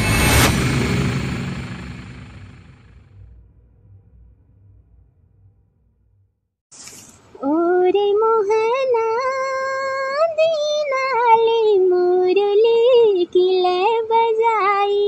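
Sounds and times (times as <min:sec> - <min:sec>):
short hiss: 0:06.7 - 0:07.4
woman singing unaccompanied: 0:07.4 - 0:15.0.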